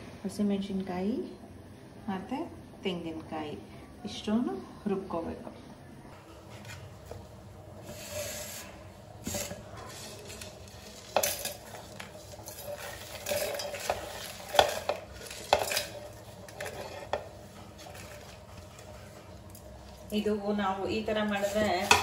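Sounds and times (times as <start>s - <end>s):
spices clinking in metal jar: 10.2s - 17.1s.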